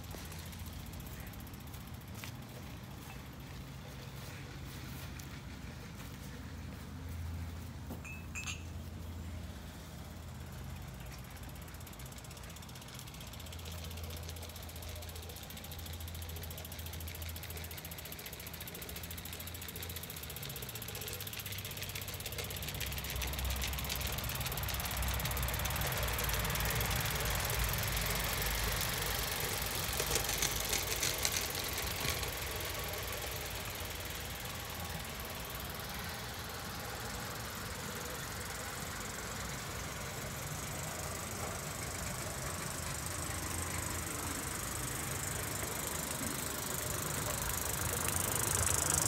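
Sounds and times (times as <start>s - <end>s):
model train clattering: 10.9s - 49.0s.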